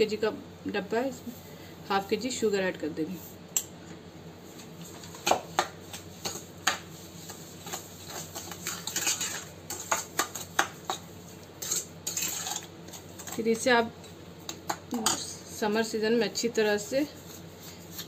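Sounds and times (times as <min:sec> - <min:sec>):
spoon scraping and clinking pot: 0:07.6 - 0:11.0, 0:11.6 - 0:13.6.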